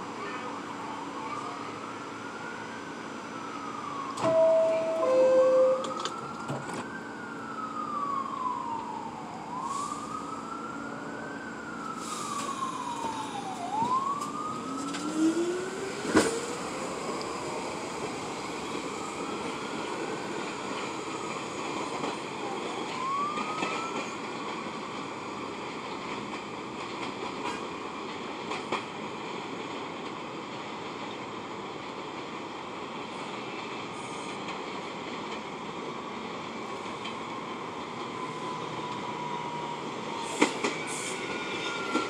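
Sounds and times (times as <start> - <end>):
subway train running: 0.0 - 42.0
emergency siren wailing: 0.4 - 28.6, 34.0 - 42.0
two-tone door chime: 4.2 - 6.1.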